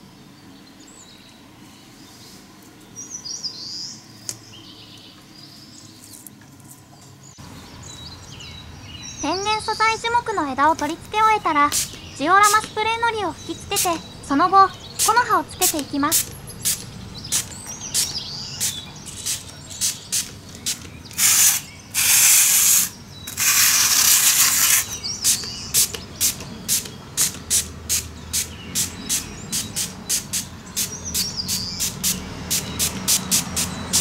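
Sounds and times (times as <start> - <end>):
aerosol spray hissing: 11.6 - 12.8, 13.4 - 14.0, 14.9 - 34.0.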